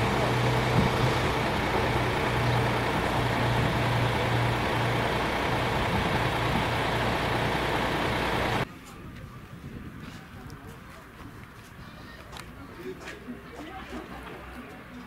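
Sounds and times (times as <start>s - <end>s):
diesel truck engine idling: 0.0s - 8.6s.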